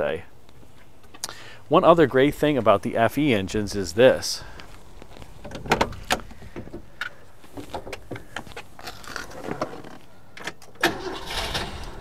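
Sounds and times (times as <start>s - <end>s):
knocks and rustling climbing in: 4.6s - 10.0s.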